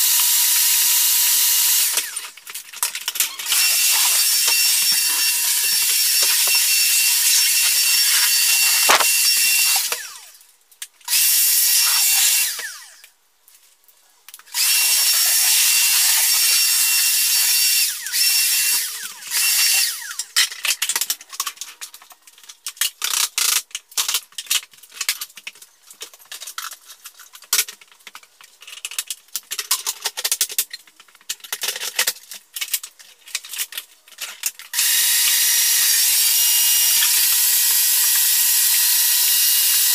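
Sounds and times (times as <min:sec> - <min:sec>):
floor sander whining: 0:03.4 - 0:10.2.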